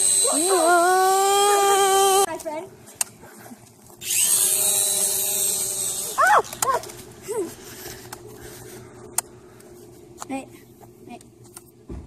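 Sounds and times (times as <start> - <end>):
toy quadcopter rotors whining: 0.0 - 2.3, 4.0 - 7.0.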